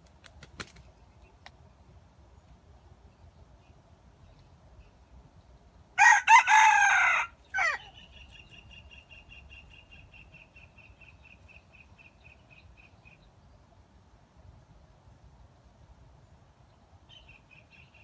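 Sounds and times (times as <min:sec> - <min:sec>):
rooster crowing: 0:06.0 - 0:07.9.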